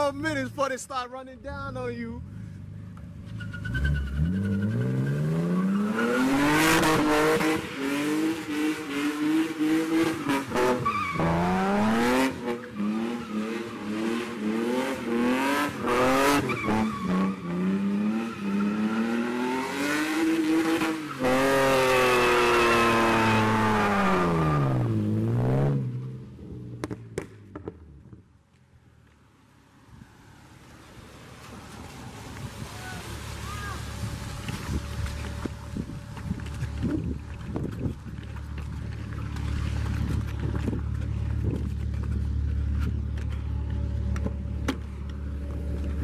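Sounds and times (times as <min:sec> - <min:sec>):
car engine revving: 0:02.2 - 0:27.3
tyres sliding on wet road: 0:29.6 - 0:43.7.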